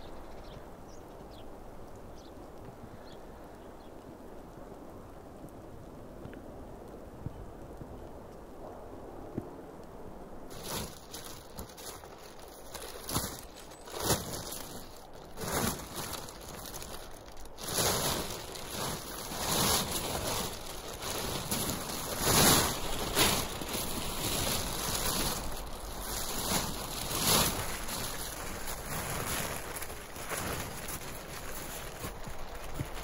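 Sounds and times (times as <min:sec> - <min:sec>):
plastic tarpaulin flapping: 0:10.5 - 0:33.0.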